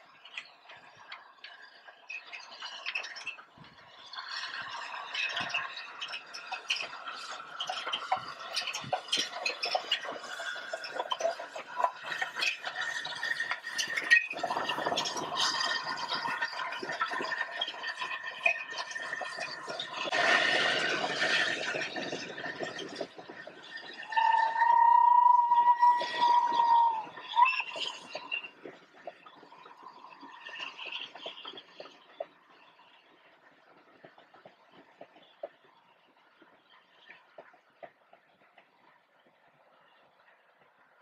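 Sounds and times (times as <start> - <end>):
steady whistle tone: 0.0 - 41.0
train wheels rattling on rails: 0.0 - 41.0
squealing tones: 23.8 - 29.4.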